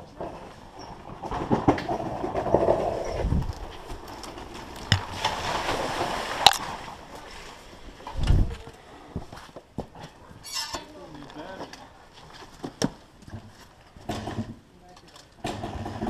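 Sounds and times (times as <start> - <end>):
dirt bike passing: 0.9 - 8.0
spraying dirt and splashing water: 3.8 - 7.8.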